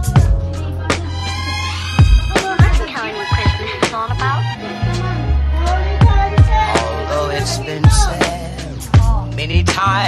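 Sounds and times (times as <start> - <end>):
upbeat music with drums and bass: 0.0 - 10.0
person singing: 4.8 - 10.0.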